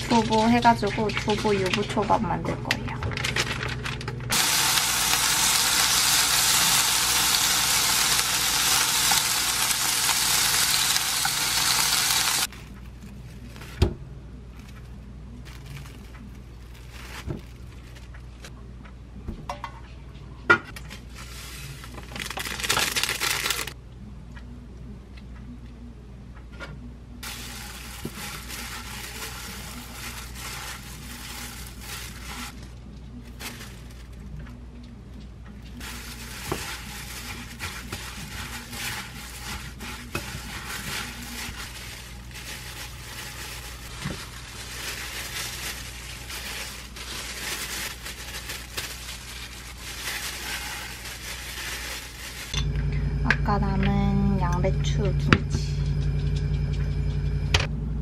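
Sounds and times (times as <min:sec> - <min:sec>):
plastic glove crinkling: 0:00.0 - 0:13.9, 0:14.5 - 0:18.5, 0:20.8 - 0:23.8, 0:27.2 - 0:34.4, 0:35.8 - 0:52.6
steady low hum: 0:23.8 - 0:58.0.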